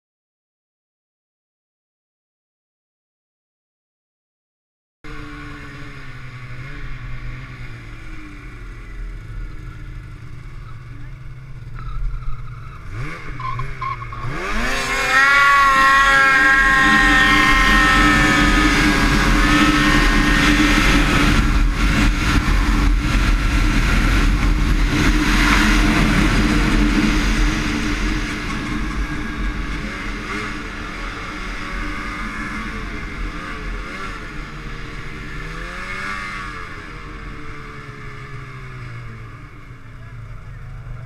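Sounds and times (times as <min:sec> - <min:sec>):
snowmobile engine running hard: 0:05.1 - 0:41.0
wind rush: 0:15.7 - 0:35.6.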